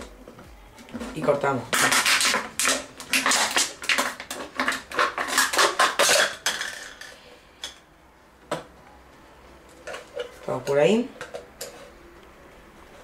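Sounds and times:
scissors cutting plastic bottle: 0:01.2 - 0:06.5.

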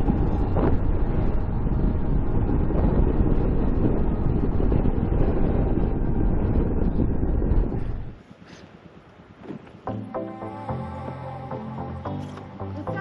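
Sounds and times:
wind buffeting microphone: 0:00.0 - 0:09.9.

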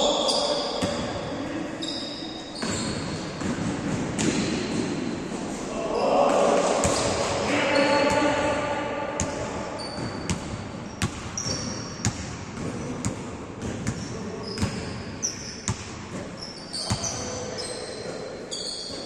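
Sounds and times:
sneakers squeaking on court: 0:00.0 - 0:05.2, 0:09.2 - 0:19.0
basketball bouncing on gym floor: 0:00.8 - 0:01.3, 0:02.6 - 0:05.1, 0:09.2 - 0:17.4.

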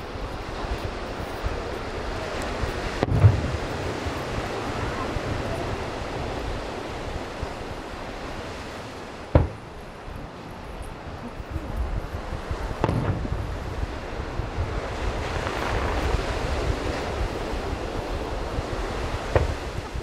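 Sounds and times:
surf: 0:00.0 - 0:20.0
wind on microphone: 0:00.0 - 0:20.0
distant firework booms: 0:02.9 - 0:06.4, 0:09.2 - 0:09.9, 0:12.5 - 0:14.0, 0:18.6 - 0:20.0.

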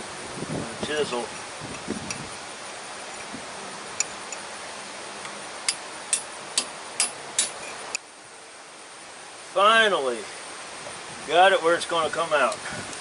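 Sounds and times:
hammer striking a chisel: 0:05.7 - 0:07.7.

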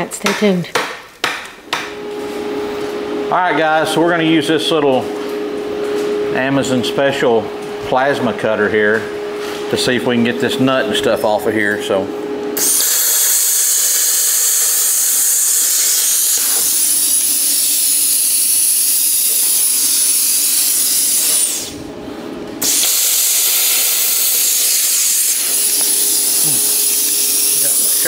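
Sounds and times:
plasma cutter hissing: 0:12.6 - 0:21.8, 0:22.6 - 0:28.0
high thin whine: 0:22.6 - 0:28.0.

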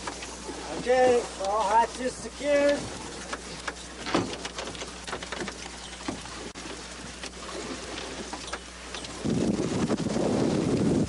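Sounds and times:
steady rain hiss: 0:00.0 - 0:05.5
rain pattering on raft: 0:00.0 - 0:11.0.

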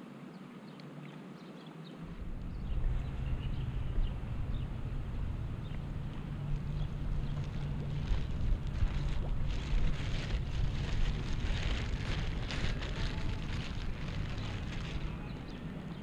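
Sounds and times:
wind rumble on microphone: 0:00.1 - 0:16.0
plastic bag crinkling: 0:07.3 - 0:15.4.

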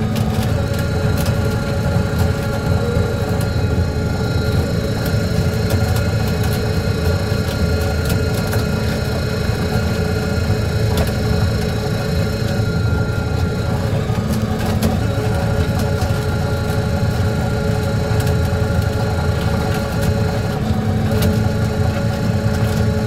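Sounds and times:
diesel engine droning: 0:00.0 - 0:23.0.

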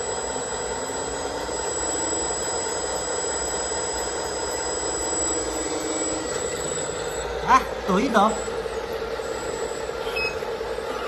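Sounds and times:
hydraulic pump whine: 0:00.0 - 0:11.0.

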